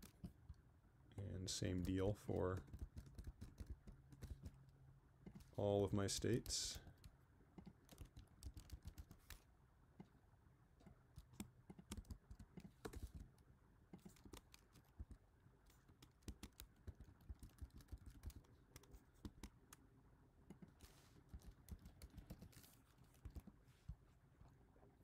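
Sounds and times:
typing on computer keyboard: 1.8 - 4.6, 6.7 - 9.4, 11.1 - 13.4, 14.0 - 19.8, 21.3 - 23.5.

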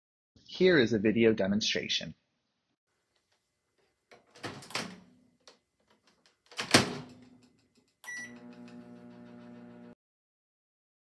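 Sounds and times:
microwave door shutting: 6.6 - 7.2
keypad beep: 8.1 - 8.4
microwave humming: 8.1 - 10.0.

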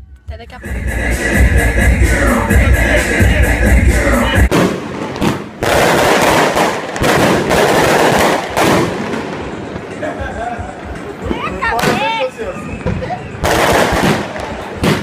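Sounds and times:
loud party music with heavy beat: 0.4 - 4.6
fireworks crackling and banging: 4.4 - 15.0.

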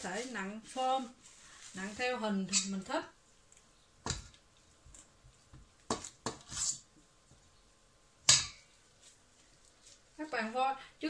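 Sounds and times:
spatula scraping metal bowl: 6.3 - 6.8.

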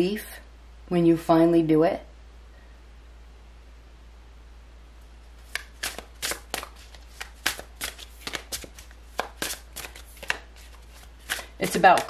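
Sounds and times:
cards being shuffled: 5.4 - 12.0.

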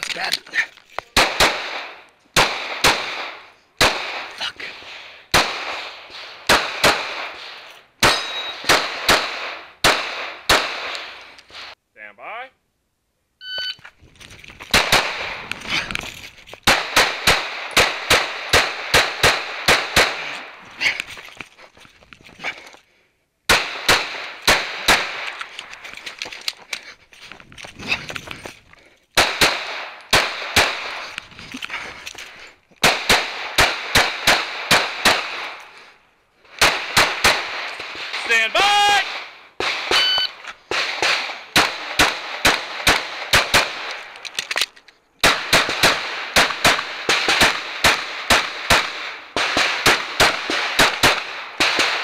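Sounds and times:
pistol shots echoing: 1.2 - 4.3, 5.3 - 11.8, 14.7 - 15.4, 16.6 - 20.6, 23.5 - 25.4, 29.2 - 31.1, 32.8 - 35.7, 36.6 - 44.2, 45.2 - 52.0.

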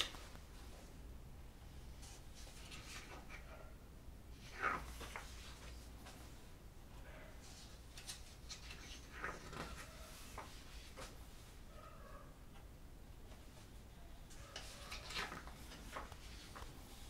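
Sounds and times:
catalogue pages being turned: 2.0 - 3.5, 4.4 - 6.4, 7.4 - 11.5, 14.3 - 17.0.

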